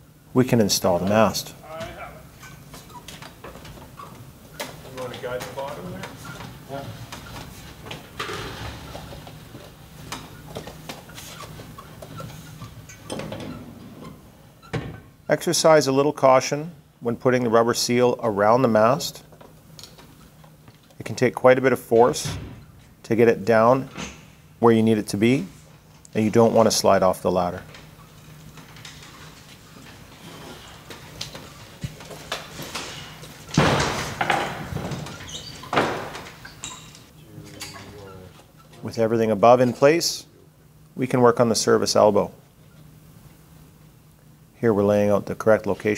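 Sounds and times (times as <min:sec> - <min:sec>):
light squeaks and knocks: 0:34.5 - 0:38.8.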